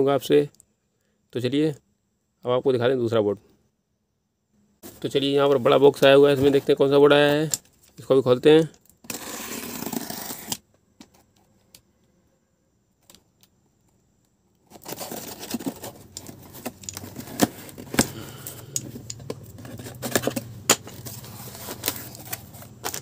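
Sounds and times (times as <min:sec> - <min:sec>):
cardboard flaps scraping and rustling: 0:06.1 - 0:06.9, 0:14.6 - 0:18.2, 0:19.4 - 0:23.0.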